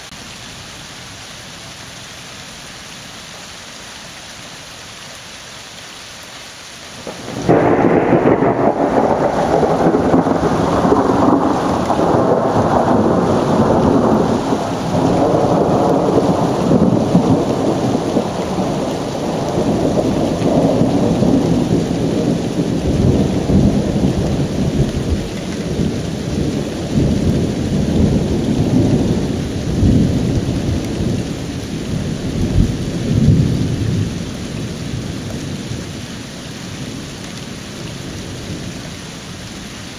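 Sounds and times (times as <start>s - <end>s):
rain hiss: 0.0s - 39.9s
thunderclap rumbling: 7.0s - 34.2s.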